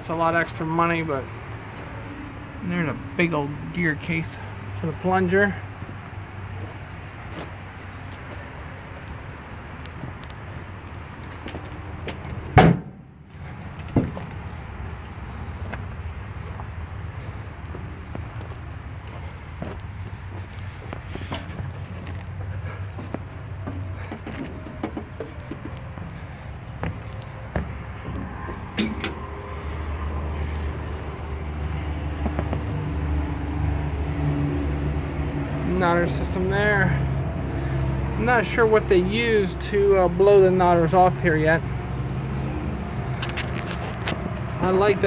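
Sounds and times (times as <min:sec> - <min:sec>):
engine humming: 0:00.0 - 0:45.0
loud thump: 0:12.6 - 0:13.1
sharp metal clunks: 0:12.6 - 0:13.1, 0:28.7 - 0:29.3.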